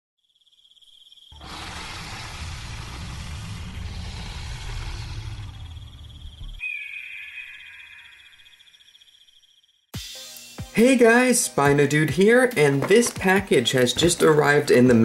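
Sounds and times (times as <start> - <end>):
crickets chirping: 0.2 - 9.9
long low rumble: 1.5 - 6.6.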